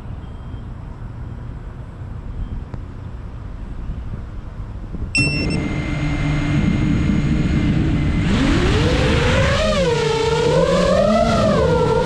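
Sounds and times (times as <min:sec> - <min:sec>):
drone motors whining: 0:05.2 - 0:12.0.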